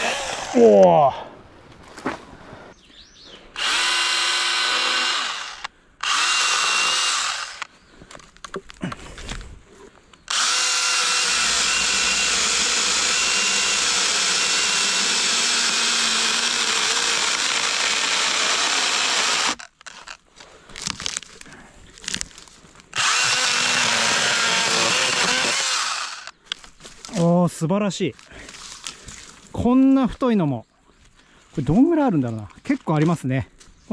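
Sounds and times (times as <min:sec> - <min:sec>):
chainsaw cutting log: 0:00.0 - 0:00.6, 0:03.6 - 0:07.7, 0:10.3 - 0:20.2, 0:22.9 - 0:26.4.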